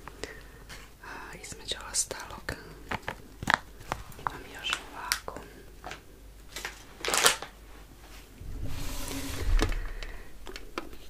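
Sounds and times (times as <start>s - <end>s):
rustle with low bumps: 8.0s - 11.0s.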